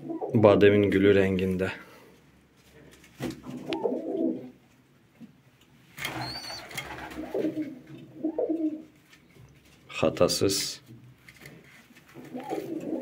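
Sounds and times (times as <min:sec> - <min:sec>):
pigeons cooing: 0:03.6 - 0:04.6, 0:06.1 - 0:08.8, 0:12.2 - 0:13.0.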